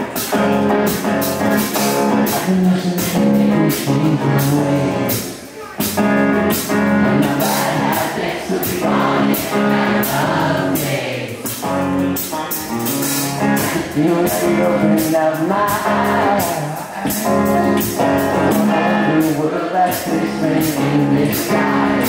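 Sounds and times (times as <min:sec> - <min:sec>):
drum kit cymbal beat: 0:00.0 - 0:22.0
electric guitars: 0:00.0 - 0:22.0
person singing: 0:07.0 - 0:11.3, 0:13.5 - 0:22.0.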